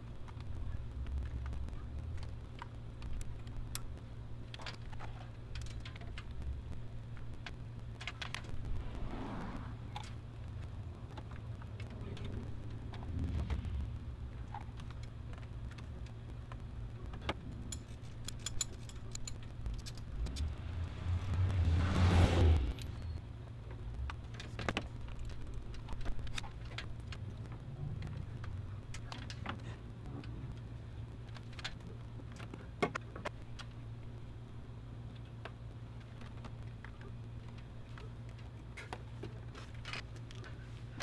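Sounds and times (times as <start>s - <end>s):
steady low hum: 0.0s - 41.0s
vehicle passing: 8.7s - 9.9s, 20.3s - 23.0s
metal tools clicking and clinking: 17.6s - 20.1s.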